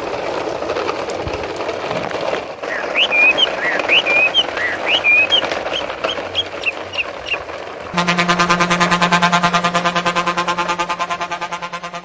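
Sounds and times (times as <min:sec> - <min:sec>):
short high chirps: 0:02.7 - 0:06.8.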